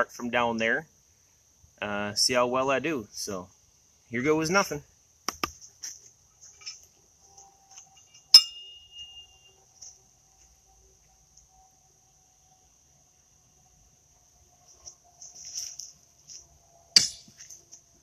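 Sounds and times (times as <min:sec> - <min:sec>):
horseshoe clanging on steel stake: 0:08.0 - 0:09.4, 0:17.0 - 0:17.5.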